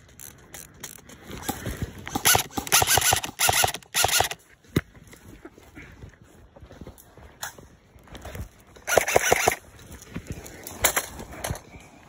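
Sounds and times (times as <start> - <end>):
airsoft rifle firing bursts: 2.1 - 4.4, 8.8 - 9.6.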